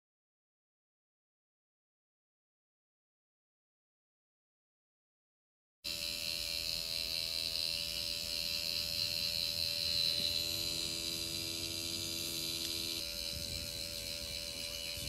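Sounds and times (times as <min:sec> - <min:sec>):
tattoo machine buzzing: 0:05.9 - 0:15.0.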